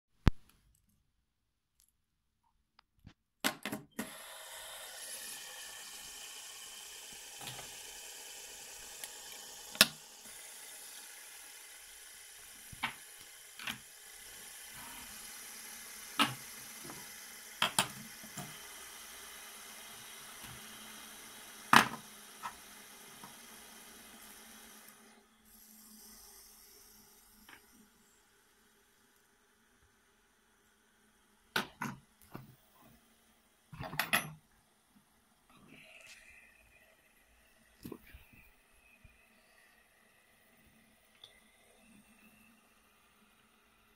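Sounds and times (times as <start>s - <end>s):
toy whirring: 4.0s - 29.3s.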